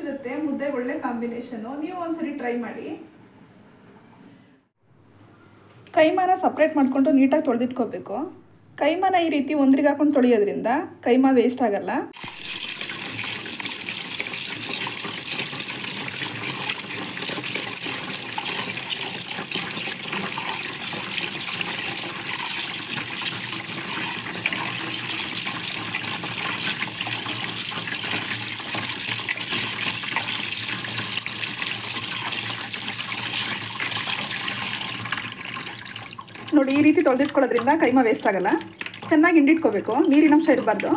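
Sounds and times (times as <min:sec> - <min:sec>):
hands rinsing meat in water: 0:12.2 - 0:40.9
tap water running into a bowl: 0:12.2 - 0:40.9.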